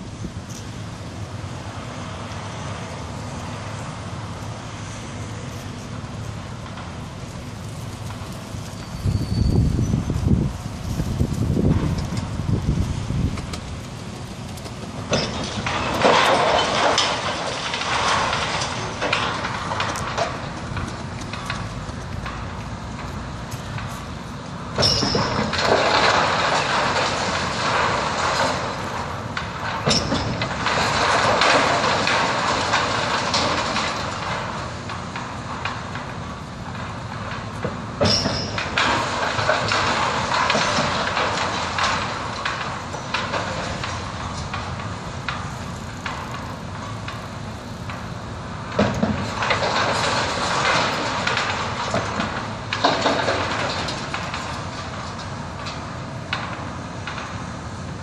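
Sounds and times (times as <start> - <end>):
crane engine rumble: 0.0 - 58.0
brick rubble crashing down: 14.6 - 22.6, 24.8 - 36.0, 38.3 - 44.8, 48.8 - 55.3.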